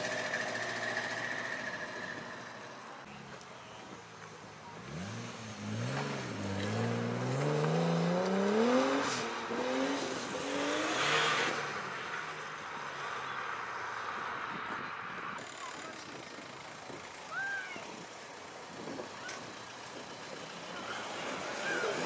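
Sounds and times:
car engine revving and accelerating: 0:04.7 - 0:14.8.

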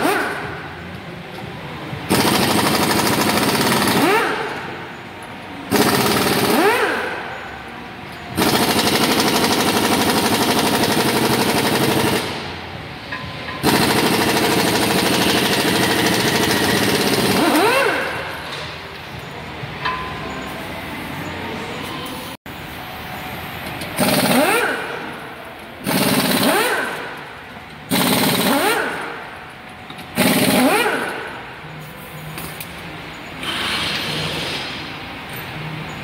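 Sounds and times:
pneumatic impact wrench hammering: 0:00.0 - 0:00.8, 0:02.0 - 0:05.0, 0:05.7 - 0:07.4, 0:08.1 - 0:18.8, 0:23.6 - 0:32.8, 0:33.4 - 0:35.0.

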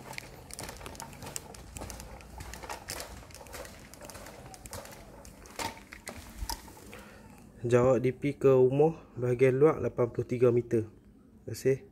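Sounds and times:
measuring wheel clicking on concrete: 0:00.0 - 0:06.7
footsteps: 0:00.0 - 0:07.2.

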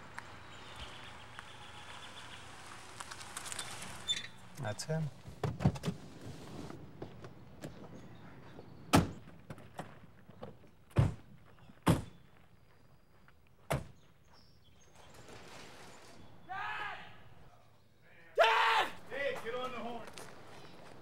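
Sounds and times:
car doors slamming shut: 0:08.9 - 0:09.2, 0:11.0 - 0:11.2.

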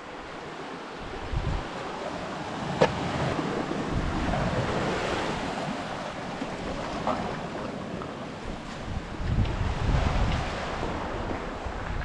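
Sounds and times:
wind on the microphone: 0:01.0 - 0:12.0
knock against rock: 0:02.8 - 0:03.0.

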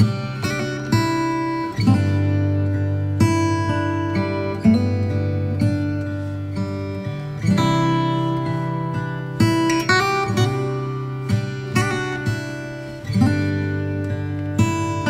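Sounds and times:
strummed acoustic guitar chords: 0:00.0 - 0:15.0.

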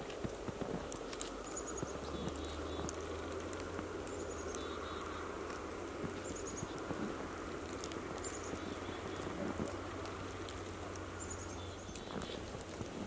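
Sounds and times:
light ticks: 0:00.0 - 0:13.0
soft hush of falling snow: 0:00.0 - 0:13.0
songbird chirping: 0:01.3 - 0:06.9, 0:08.1 - 0:09.4, 0:11.0 - 0:12.4.

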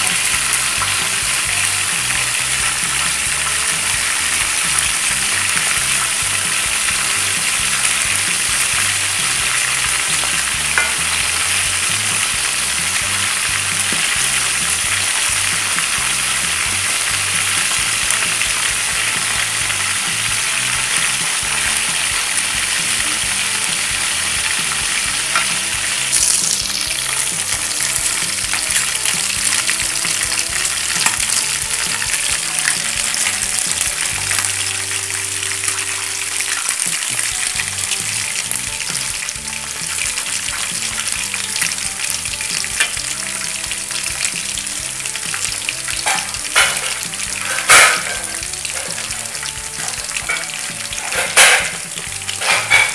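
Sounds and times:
oil sizzling and crackling: 0:00.0 - 0:52.9.

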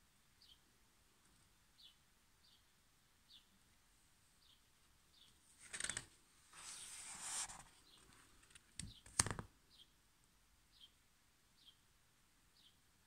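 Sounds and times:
book pages turning: 0:05.6 - 0:09.5
sharp taps of page and cover: 0:08.5 - 0:09.5.

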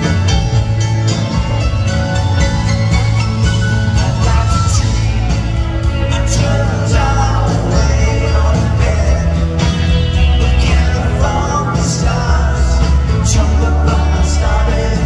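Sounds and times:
heavy bass line: 0:00.0 - 0:15.0
live country-rock band: 0:00.0 - 0:15.0
man singing: 0:03.8 - 0:15.0.

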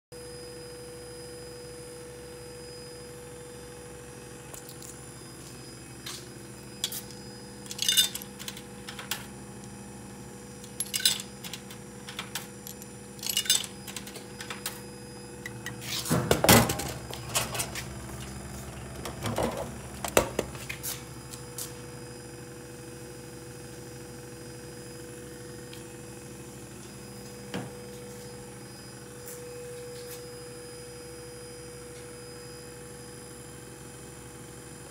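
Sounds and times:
vending machine hum: 0:00.2 - 0:34.9
coins clinking: 0:07.6 - 0:09.2, 0:10.6 - 0:14.8
vend mechanism working: 0:10.6 - 0:20.7.

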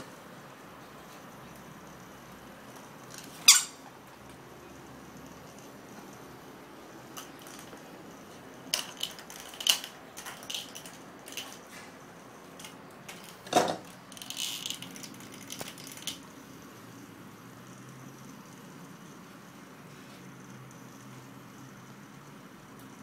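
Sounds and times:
plastic toys clattering on tile: 0:02.7 - 0:03.8, 0:07.0 - 0:16.3.

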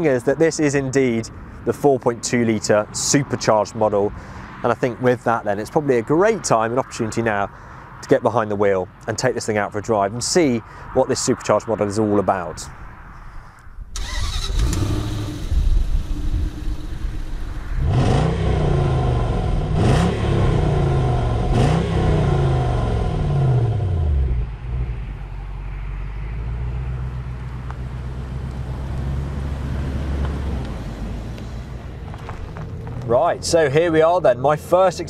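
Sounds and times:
car engine idling and revving: 0:13.2 - 0:35.0.

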